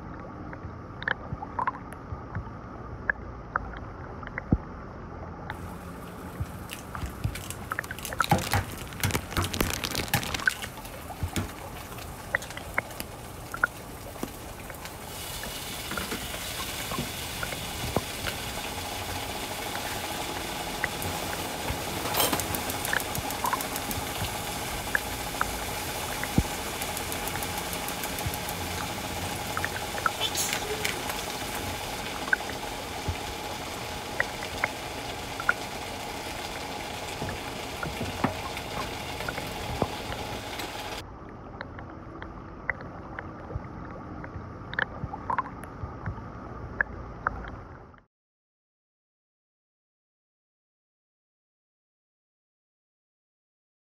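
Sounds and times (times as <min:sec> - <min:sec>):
egg sizzling in a pan: 0:05.5 - 0:41.0
sharp clicks and crackles: 0:06.3 - 0:15.0, 0:20.8 - 0:33.2.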